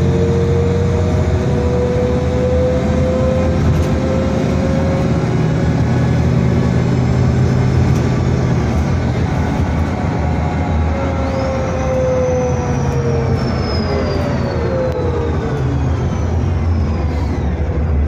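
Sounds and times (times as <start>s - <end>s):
bus diesel engine drone: 0.0s - 18.0s
drivetrain whine: 0.0s - 18.0s
road noise: 0.0s - 18.0s
faint high whistle: 11.2s - 17.7s.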